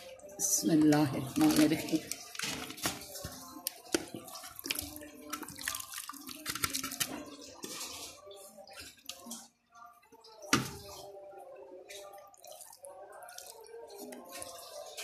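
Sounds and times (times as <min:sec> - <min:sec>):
wet gravy plopping: 0:00.9 - 0:09.6.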